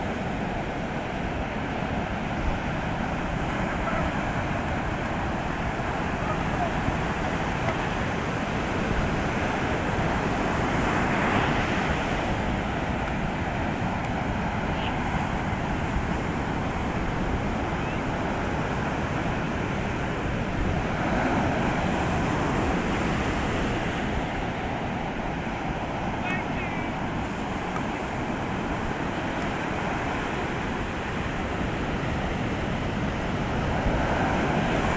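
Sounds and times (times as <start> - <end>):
surf breaking on beach: 0.0 - 34.9.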